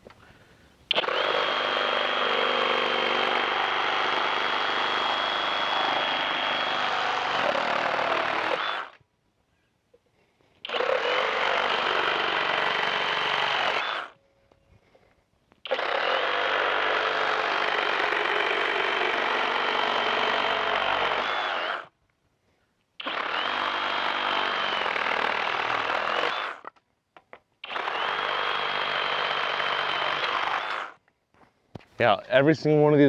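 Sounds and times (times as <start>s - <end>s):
reciprocating saw cutting wood: 0.9s - 9.0s, 10.6s - 14.2s, 15.6s - 21.9s, 23.0s - 26.7s, 27.6s - 31.0s.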